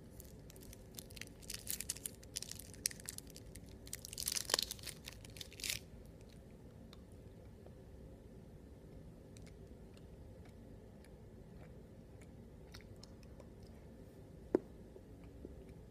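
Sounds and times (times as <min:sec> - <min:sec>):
candy wrapper crinkling and tearing: 0:00.1 - 0:05.9.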